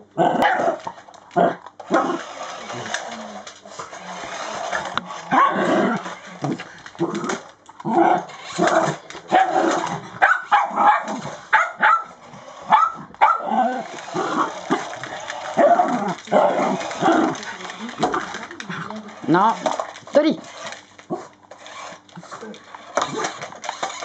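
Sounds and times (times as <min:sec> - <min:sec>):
small dogs barking: 0:00.3 - 0:00.8, 0:05.3 - 0:06.0, 0:08.0 - 0:14.8.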